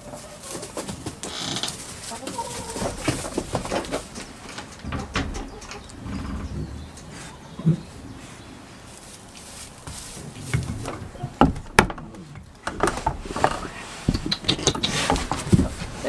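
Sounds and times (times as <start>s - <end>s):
rustling on straw: 0.0s - 4.8s, 7.0s - 14.2s, 14.9s - 16.0s
sharp knocks: 10.5s - 16.0s.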